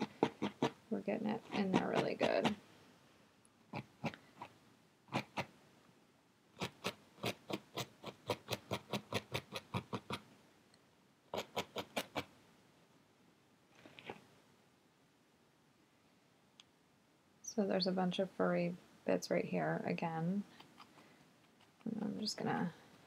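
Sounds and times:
felting needle poking foam pad: 1.4 - 2.6.

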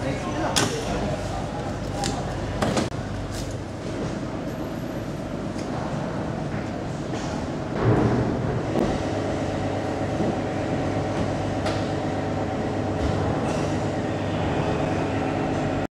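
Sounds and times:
ship machinery droning: 4.0 - 15.9.

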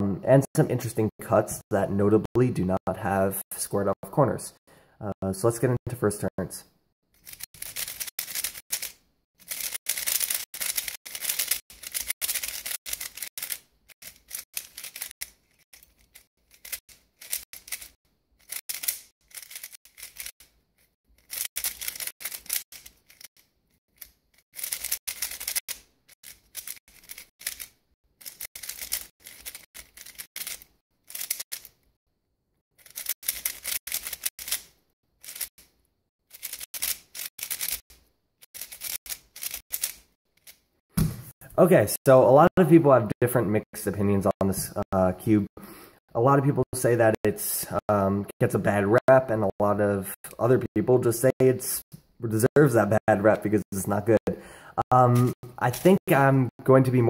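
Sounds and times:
plastic puzzle cube clicking: 7.2 - 20.3, 21.2 - 23.3, 24.0 - 31.8, 32.8 - 35.6, 36.3 - 38.0, 38.6 - 40.6.

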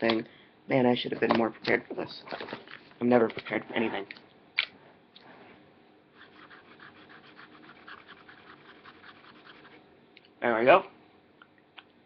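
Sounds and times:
fast soft scratching: 6.2 - 9.8.

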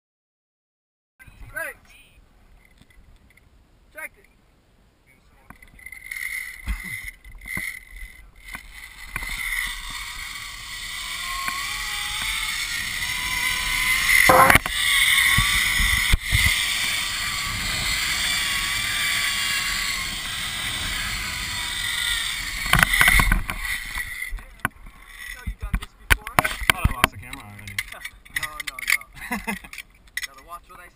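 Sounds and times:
pulleys whirring along cable: 5.7 - 25.5
wind on microphone: 9.0 - 25.0.

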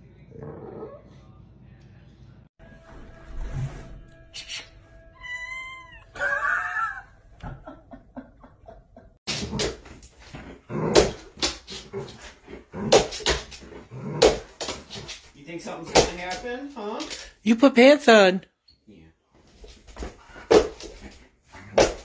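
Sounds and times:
cat meowing: 5.2 - 6.2.

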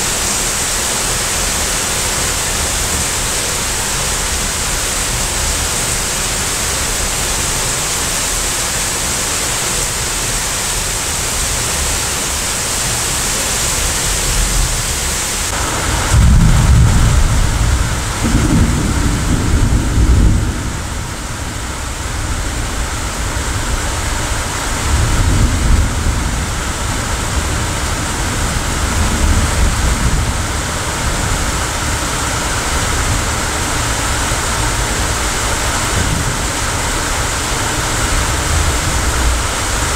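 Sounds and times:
steady rain hiss: 0.0 - 39.9
rolling thunder: 15.5 - 39.9.

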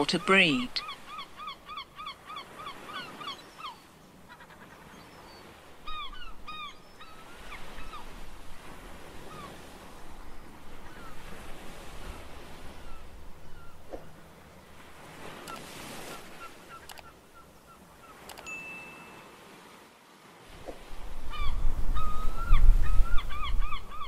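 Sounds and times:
seals honking calls: 0.0 - 8.2.

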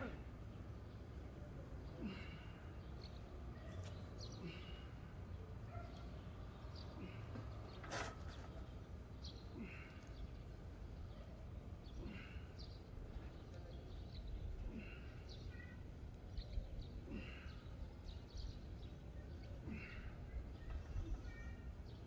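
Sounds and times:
birds chirping: 0.0 - 22.0
exertion grunts: 1.9 - 2.6, 9.5 - 10.1, 11.9 - 12.5, 17.0 - 17.7, 19.6 - 20.2.

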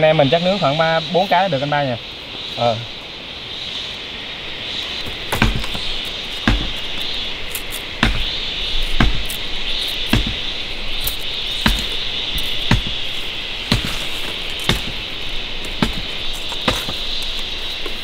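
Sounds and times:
knife chopping bamboo: 5.3 - 17.2.

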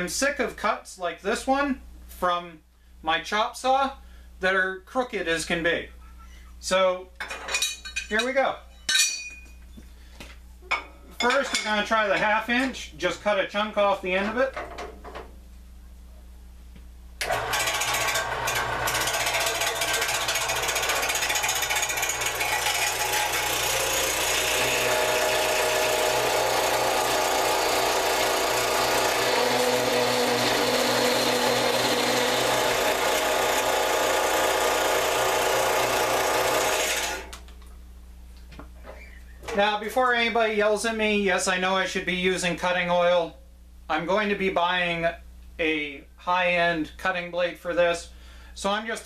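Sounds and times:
band saw cutting steel: 17.2 - 37.3.

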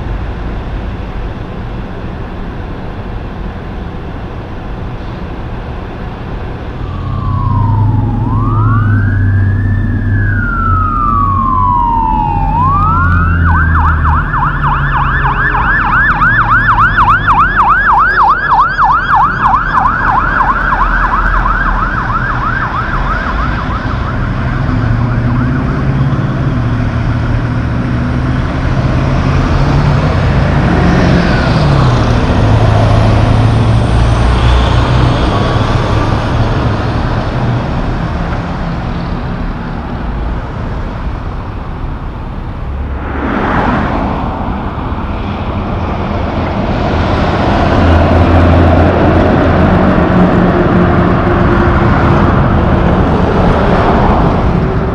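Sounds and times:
engine and traffic rumble: 0.0 - 54.9
fire truck siren wailing and yelping: 6.3 - 42.4, 44.6 - 54.9.

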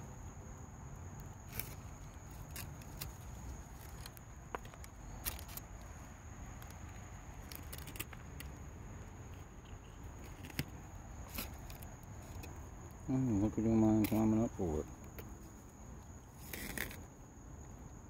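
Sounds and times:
insect chorus drone: 0.0 - 18.0.

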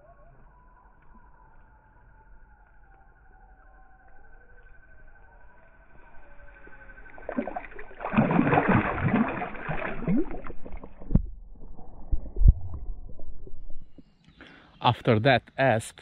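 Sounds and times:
water splashing: 6.8 - 14.0
low thumps: 10.2 - 14.1.

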